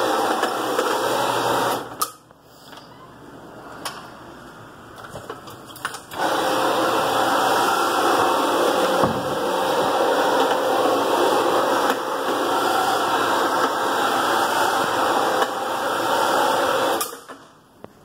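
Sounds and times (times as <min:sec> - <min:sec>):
carpet brush machine whirring: 0:00.0 - 0:02.0, 0:06.1 - 0:17.4.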